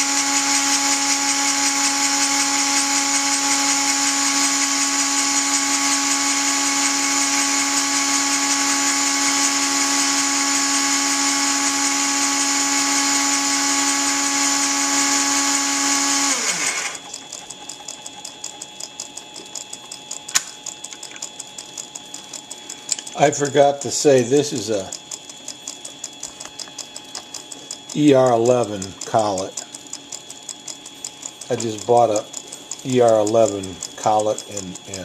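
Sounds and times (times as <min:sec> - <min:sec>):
rotary grinder whining: 0:00.0 - 0:21.8, 0:25.9 - 0:35.0
fast ticking: 0:00.2 - 0:35.0
sharp click: 0:16.3 - 0:23.2.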